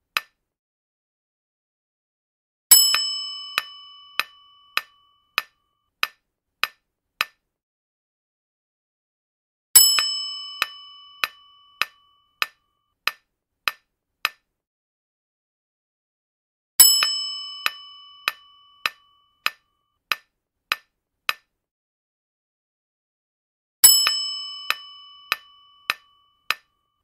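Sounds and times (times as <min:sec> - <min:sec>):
bell-like chime: 0:02.7 - 0:05.4, 0:09.8 - 0:12.4, 0:16.9 - 0:19.4, 0:23.9 - 0:26.5.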